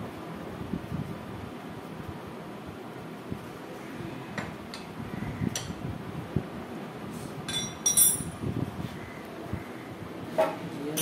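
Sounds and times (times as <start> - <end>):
metal tools clinking on metal: 7.5 - 8.4.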